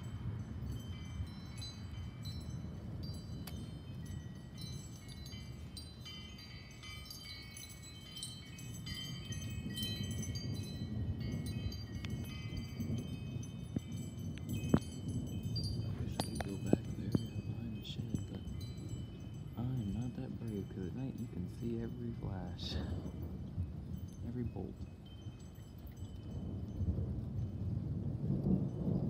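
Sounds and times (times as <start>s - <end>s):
wind chimes ringing: 0.0s - 29.0s
steady low rumble: 8.1s - 25.2s.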